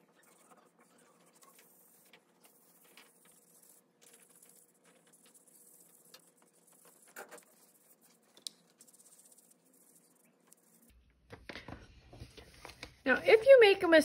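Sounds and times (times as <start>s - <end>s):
paintbrush rubbing on paper: 0.0s - 10.9s.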